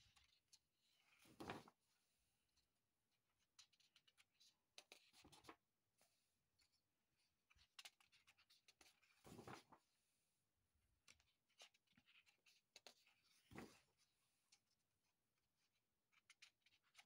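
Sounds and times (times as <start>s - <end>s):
paper pages rustling: 1.1s - 1.8s, 7.5s - 9.8s
page turning swishes: 1.2s - 1.7s, 9.2s - 9.8s.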